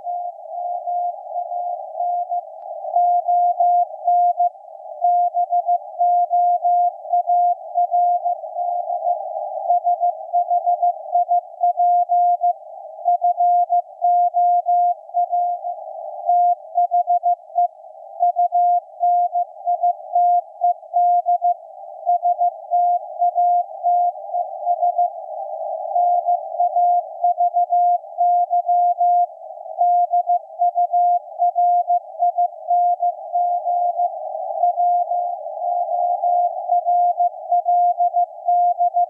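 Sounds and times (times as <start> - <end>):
receiver hiss: 0.0 - 39.0
morse code beeps: 18.2 - 24.1, 26.0 - 34.0.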